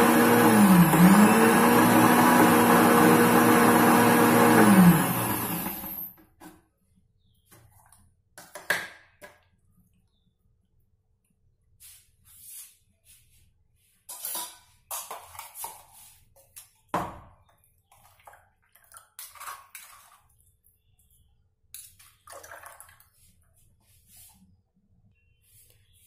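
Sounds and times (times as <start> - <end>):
thick liquid pouring and squelching: 22.0 - 23.5.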